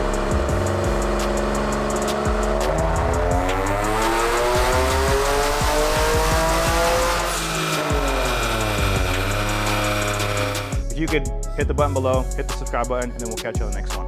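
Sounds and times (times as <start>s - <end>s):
car engine revving: 0.0s - 10.8s
background music with a beat: 0.0s - 14.0s.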